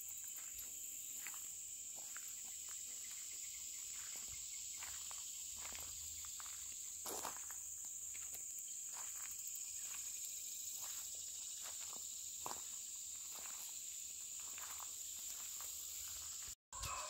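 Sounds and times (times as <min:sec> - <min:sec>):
insect chorus drone: 0:00.0 - 0:17.0
footsteps rustling through weeds: 0:04.8 - 0:07.5, 0:14.4 - 0:16.5.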